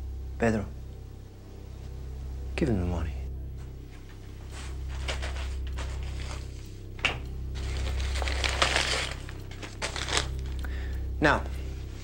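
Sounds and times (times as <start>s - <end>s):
low music drone: 0.0s - 12.0s
paper crinkling and rustling: 4.5s - 6.7s, 7.5s - 10.7s.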